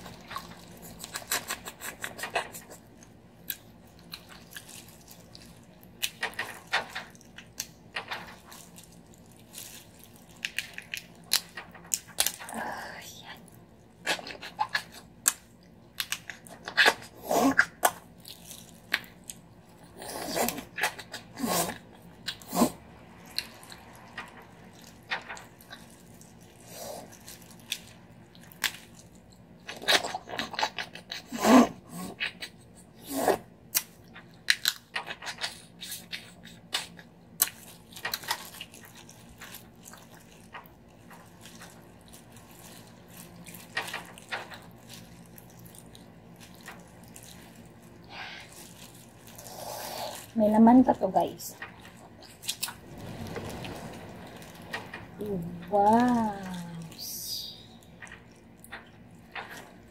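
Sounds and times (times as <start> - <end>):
plastic gloves crinkling: 0.0 - 22.4, 23.2 - 31.1, 32.4 - 59.9
chewing and mouth sounds: 0.0 - 31.4, 32.0 - 50.4, 51.5 - 57.0
crab shells cracking: 0.1 - 12.6, 14.0 - 21.3, 33.6 - 49.5.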